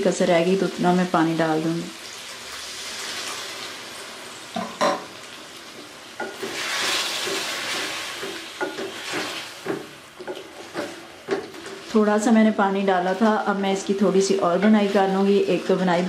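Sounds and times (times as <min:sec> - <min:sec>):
food sizzling in a pot: 0:00.0 - 0:16.0
spatula scraping a pot: 0:06.2 - 0:12.0.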